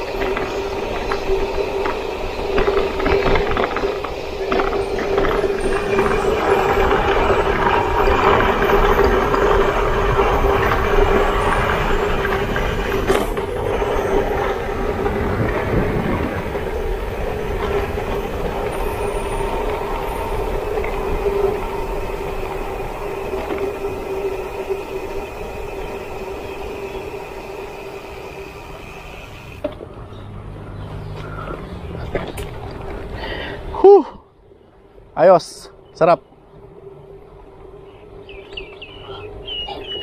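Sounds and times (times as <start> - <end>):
wind rush: 0.0 - 29.6
mid-pitched whine: 0.0 - 30.0
bike tyre noise: 0.0 - 34.1.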